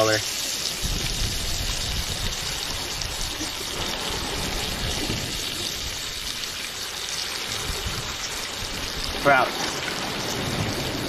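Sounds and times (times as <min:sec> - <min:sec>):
waves breaking against rocks: 0:00.0 - 0:11.0.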